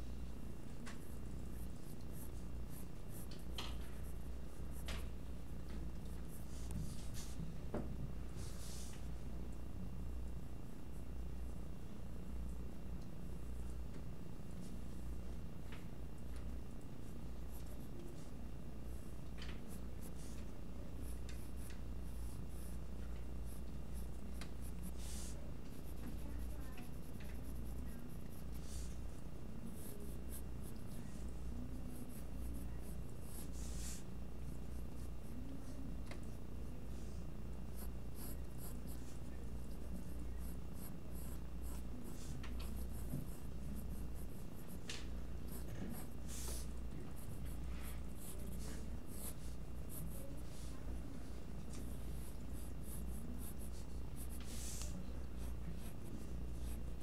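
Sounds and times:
steady low hum: 0.0s - 57.0s
pencil scratching on paper: 0.8s - 5.2s, 17.0s - 57.0s.

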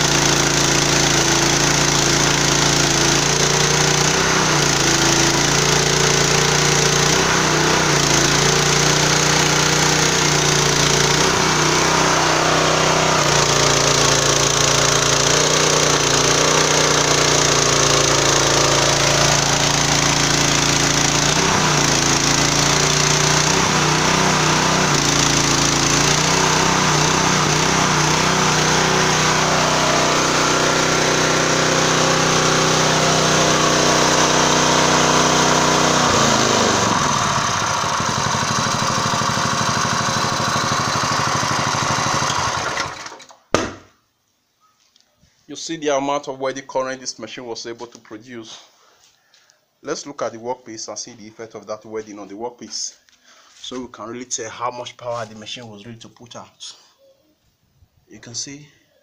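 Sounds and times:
petrol engine running: 0.0s - 43.3s.

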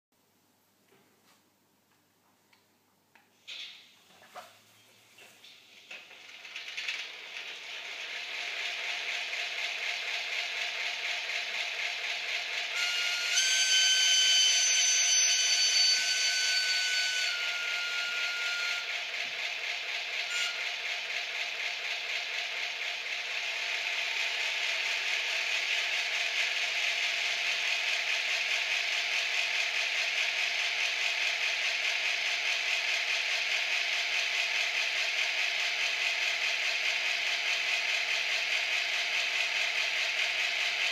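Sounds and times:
diesel engine sound from small speaker: 5.8s - 40.9s
locomotive horn tone: 12.8s - 18.9s.

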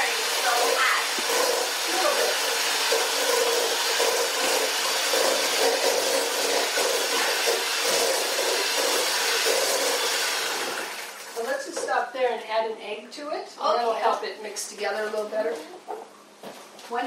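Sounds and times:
electric hand mixer running: 0.0s - 11.6s.

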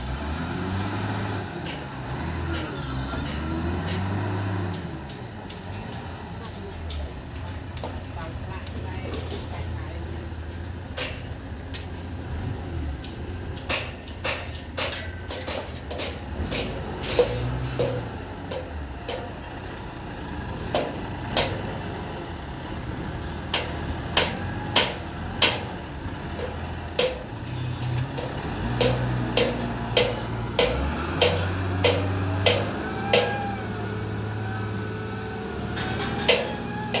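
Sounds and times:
diesel engine under load: 0.0s - 37.0s
sharp knocks: 28.2s - 33.5s.

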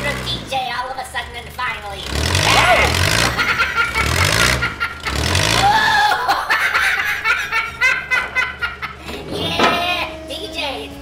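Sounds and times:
high-pitched voice laughing: 2.6s - 11.0s.

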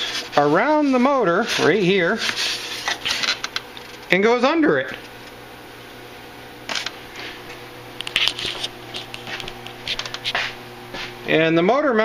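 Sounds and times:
steady low hum: 0.0s - 12.0s
styrofoam packing rustling: 8.0s - 10.5s.

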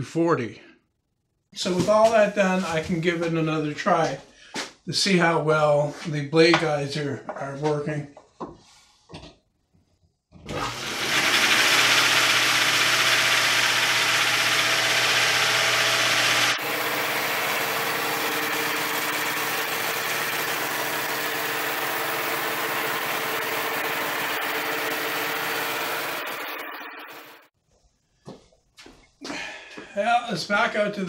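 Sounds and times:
band saw blade whirring: 10.5s - 27.5s
electric motor hum: 10.5s - 27.5s.

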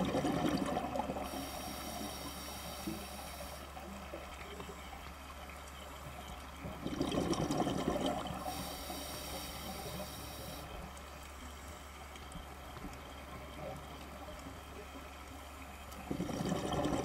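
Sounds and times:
underwater exhaled bubbles gurgling: 0.0s - 5.4s, 6.1s - 11.0s, 15.9s - 17.0s
regulator breath hiss: 1.3s - 3.8s, 8.4s - 10.8s.

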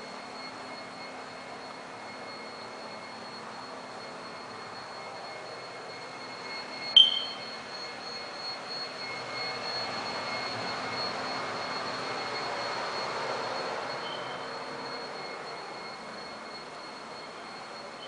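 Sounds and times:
sharp click with ring: 7.0s - 7.4s.

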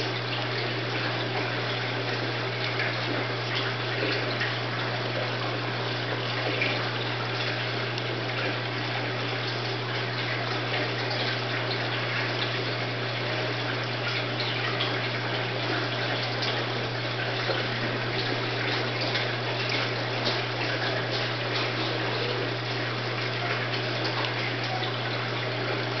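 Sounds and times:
running water: 0.0s - 26.0s.

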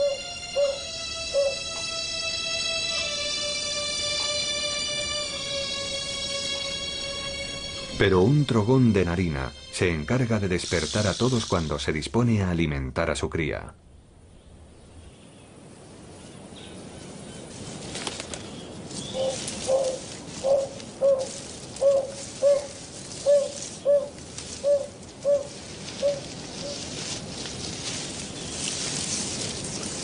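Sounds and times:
bird hooting: 0.0s - 6.4s, 19.0s - 26.9s
forest background hiss: 0.0s - 30.0s.

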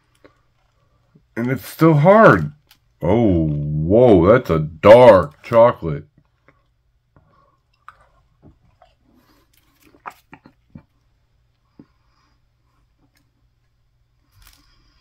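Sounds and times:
person chewing crunchy crust: 7.5s - 11.1s.

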